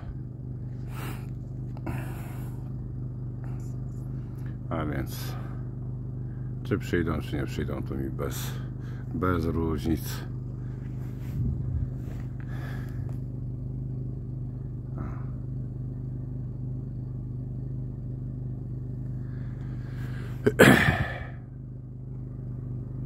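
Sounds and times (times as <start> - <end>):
engine humming: 0.0 - 23.0
rustling on microphone: 10.8 - 12.4.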